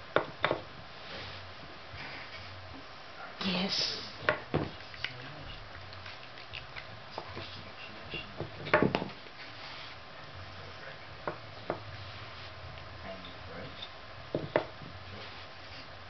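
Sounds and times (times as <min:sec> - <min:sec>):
wooden pegs knocking on board: 0:00.2 - 0:00.7, 0:08.4 - 0:09.2, 0:14.3 - 0:14.9.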